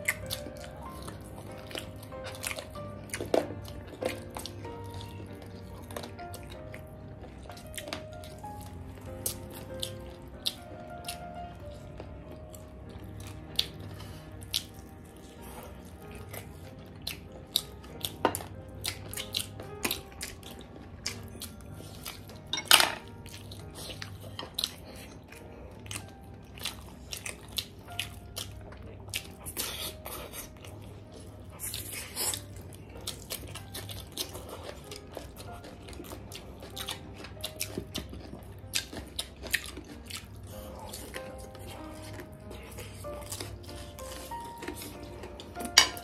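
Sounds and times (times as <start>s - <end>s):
people chewing food: 0.0s - 46.0s
chopsticks knocking on plates: 22.5s - 23.0s.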